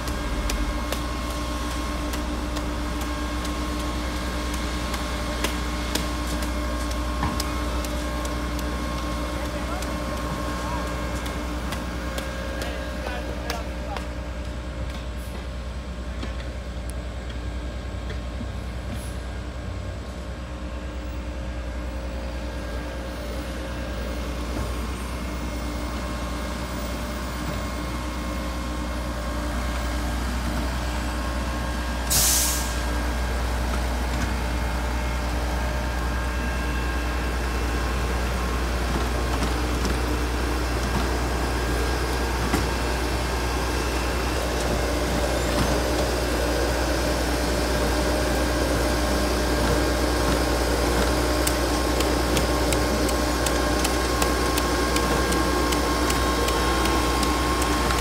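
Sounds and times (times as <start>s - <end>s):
diesel engine running: 0.0s - 58.0s
sharp air hiss: 32.1s - 32.8s.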